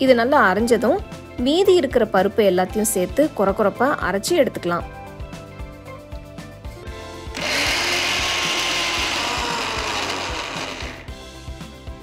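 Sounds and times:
soft background music: 0.0s - 12.0s
mixer grinder running: 7.3s - 11.1s.

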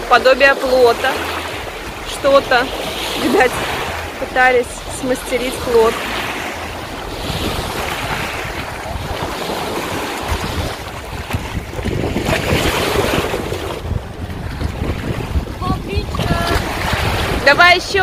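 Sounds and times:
small waves washing on shore: 0.0s - 18.0s
wind buffeting microphone: 0.0s - 18.0s.

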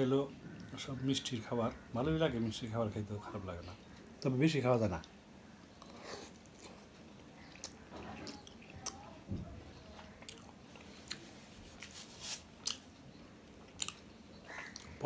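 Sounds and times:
man chewing food: 5.0s - 9.1s, 9.9s - 15.0s.

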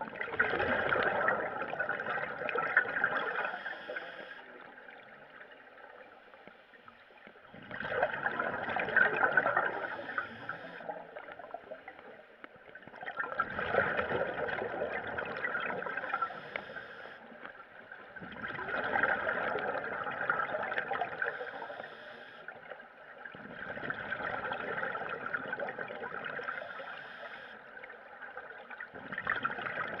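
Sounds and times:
air bubbling underwater: 0.2s - 3.5s.

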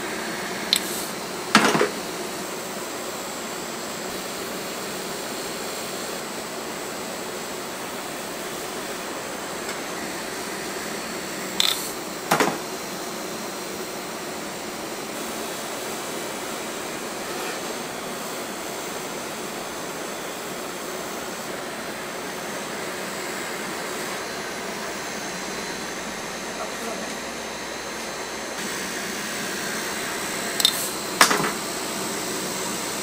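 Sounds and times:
cotton candy machine whirring: 0.0s - 33.0s
sharp knocks: 12.3s - 12.7s.

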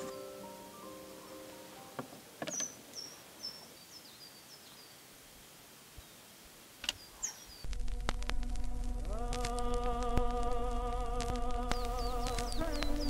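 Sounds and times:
bird chirping: 0.0s - 5.2s, 5.9s - 7.9s, 10.4s - 13.0s
record hum and surface noise: 5.2s - 13.0s.

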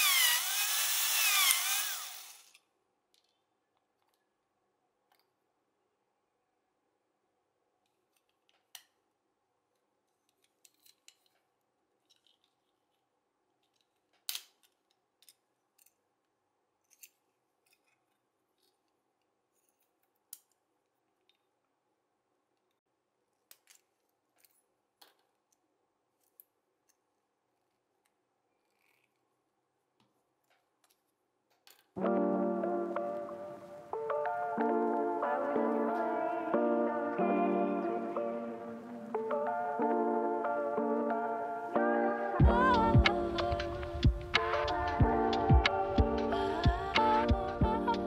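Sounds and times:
toy car parts clicking and snapping: 0.0s - 4.2s, 10.2s - 13.0s, 13.6s - 16.0s, 16.8s - 20.6s, 23.4s - 25.6s.

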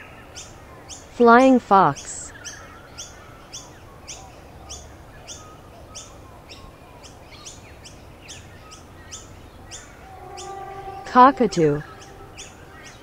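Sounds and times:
bird chirping: 9.7s - 13.0s.

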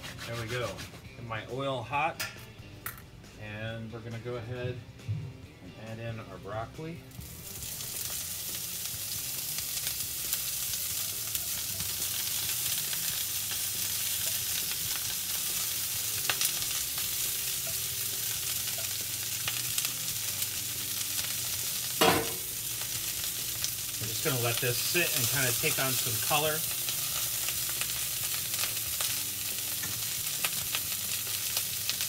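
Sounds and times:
oil crackles: 7.1s - 32.0s
vegetables sizzling in oil: 7.1s - 32.0s.

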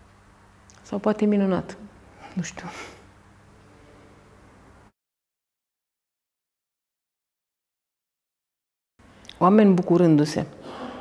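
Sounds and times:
low hum: 0.0s - 4.9s.

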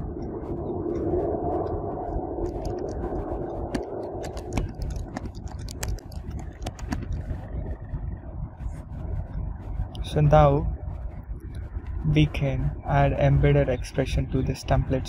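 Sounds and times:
low background rumble: 0.0s - 15.0s
keyboard typing clicks: 2.4s - 7.2s.

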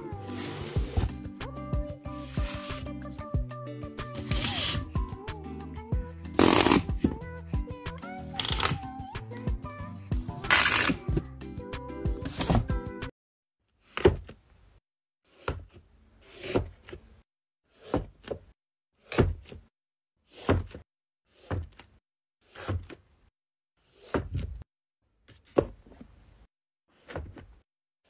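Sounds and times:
music: 0.0s - 13.1s
books sliding onto shelf: 0.2s - 1.2s, 12.2s - 12.7s.

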